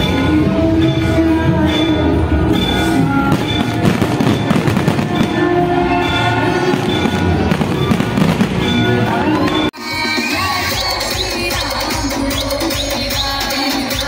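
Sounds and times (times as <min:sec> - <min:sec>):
music playing: 0:00.0 - 0:14.0
fireworks bangs and crackles: 0:03.2 - 0:09.7.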